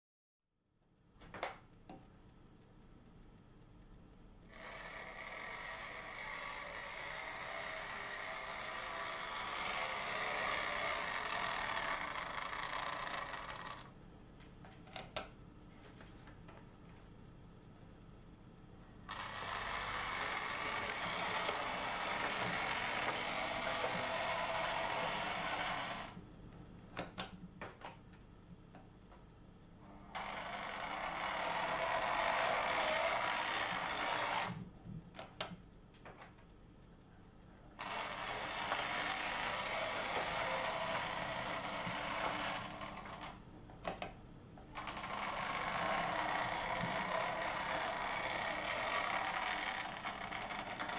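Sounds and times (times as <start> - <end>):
model train motor whirring: 4.5 - 13.9, 19.1 - 26.2, 30.0 - 34.6, 37.8 - 43.4, 44.8 - 50.9.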